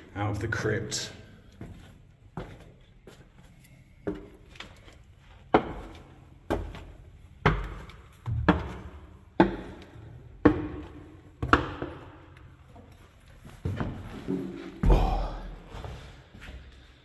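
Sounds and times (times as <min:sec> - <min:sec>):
heavy echoing footsteps: 0:04.1 - 0:17.0.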